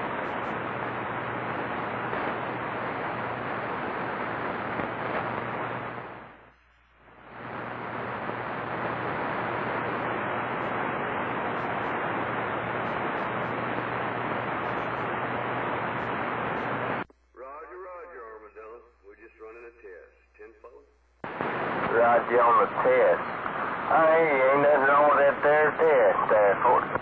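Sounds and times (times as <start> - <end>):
radio static hiss: 0.0 - 27.0.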